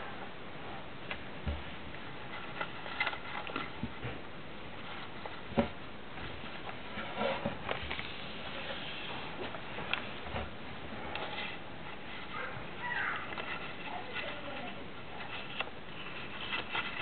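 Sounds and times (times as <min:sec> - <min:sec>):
paper rustling and crinkling: 0:11.2 - 0:17.0.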